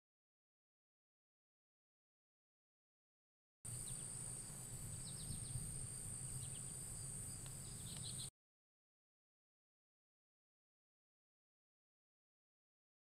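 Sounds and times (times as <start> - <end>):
insect drone: 3.7 - 8.3
short bird chirps: 6.3 - 8.3.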